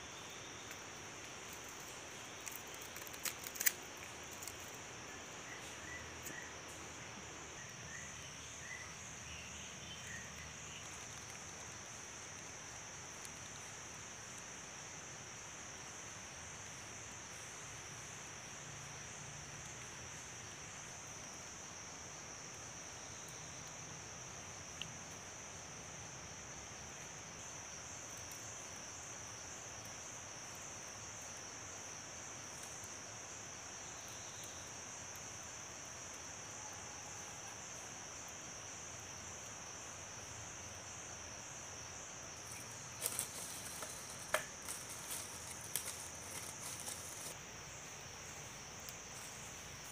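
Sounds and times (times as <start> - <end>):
high-pitched insect chorus: 0.0 - 49.9
machete striking bamboo sticks: 43.1 - 45.1.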